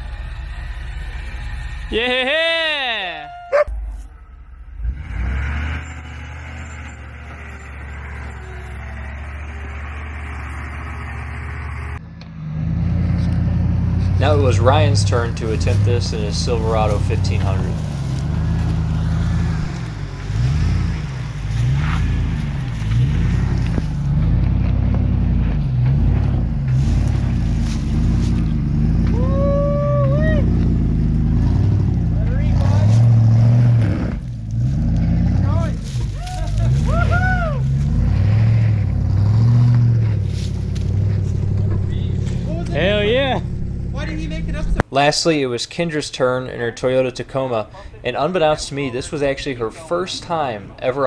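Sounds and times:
vehicle engine running: 0.0s - 2.3s, 3.6s - 44.8s
person calling out: 2.0s - 3.7s.

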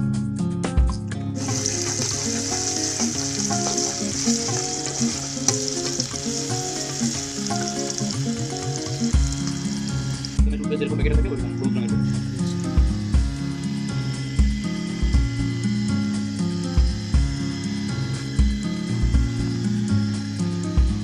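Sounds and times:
background music: 0.0s - 21.0s
onions sizzling in oil: 1.4s - 10.4s
spatula stirring in wok: 1.4s - 10.4s.

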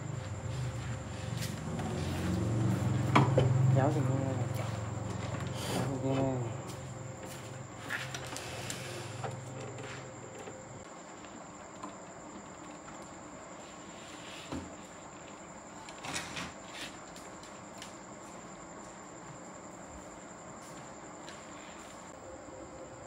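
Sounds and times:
high thin whine: 0.0s - 10.8s
steady hiss: 7.8s - 9.5s.

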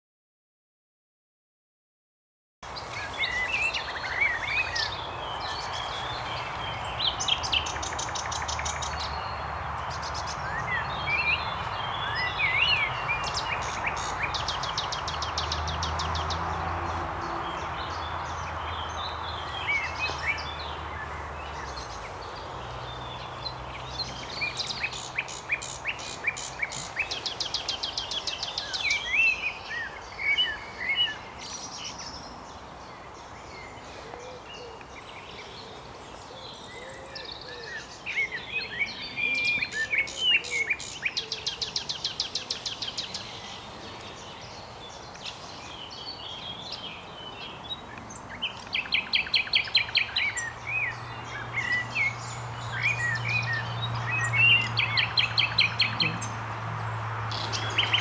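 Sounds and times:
nightingale singing: 2.8s - 16.8s, 17.5s - 32.3s, 32.9s - 56.6s, 57.2s - 58.0s.

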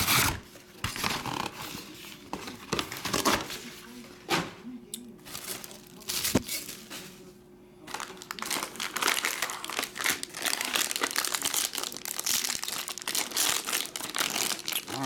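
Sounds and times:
foil wrapper crinkling and tearing: 5.3s - 6.8s, 7.9s - 15.0s.

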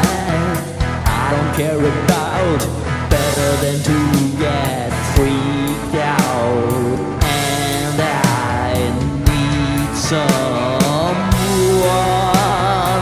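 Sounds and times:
distorted electric guitar: 0.0s - 13.0s
man singing: 0.0s - 13.0s
drum beat: 7.2s - 13.0s.

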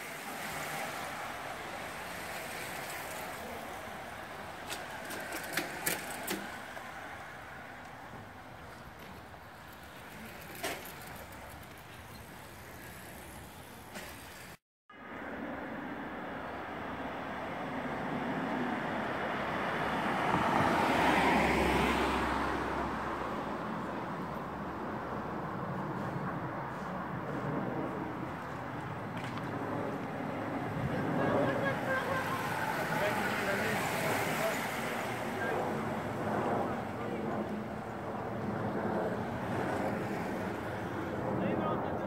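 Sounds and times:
bicycle tyres hissing: 0.0s - 14.6s, 31.8s - 35.4s
car driving past: 18.7s - 23.6s.

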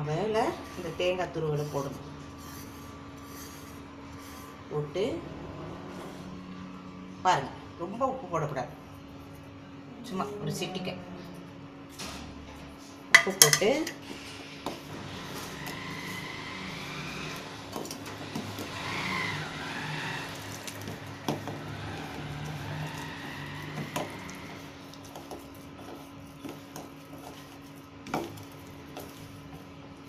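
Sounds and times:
fingers mixing flour in bowl: 0.0s - 4.7s, 14.4s - 30.0s
low background hum: 0.0s - 30.0s.

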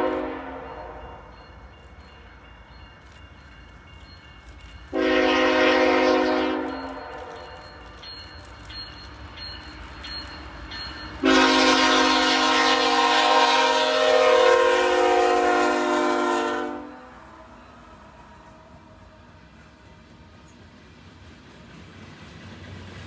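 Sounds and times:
locomotive air horn blast: 0.0s - 1.0s, 4.9s - 7.4s, 11.2s - 17.5s
passing train rumble: 0.0s - 23.0s.

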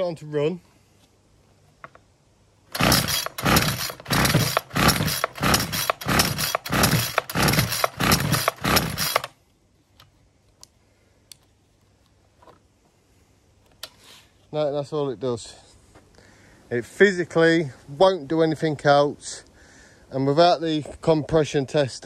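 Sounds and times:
pull-start engine cranking: 2.7s - 9.3s.

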